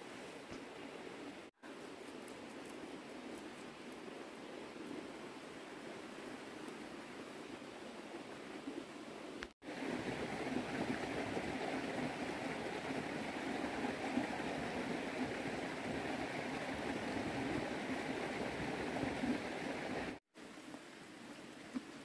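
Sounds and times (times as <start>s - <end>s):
stream water rushing: 9.7s - 20.2s.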